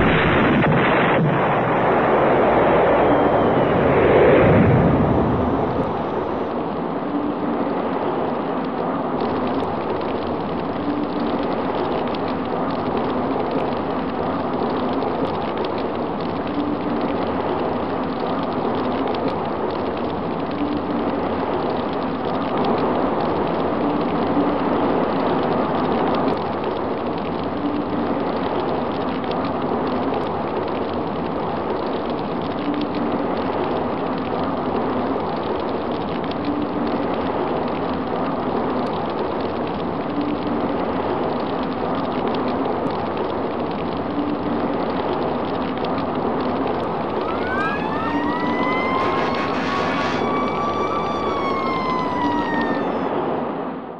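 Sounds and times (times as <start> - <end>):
siren wailing: 0.0 - 7.8, 45.6 - 53.9
roar of large fire: 25.2 - 53.6.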